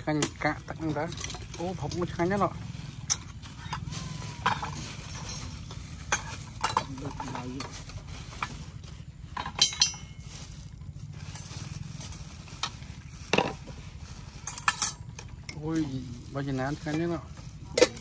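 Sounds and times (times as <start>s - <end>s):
utensil clinking against pot: 3.0s - 7.9s, 9.3s - 10.3s, 14.4s - 15.6s, 17.7s - 18.0s.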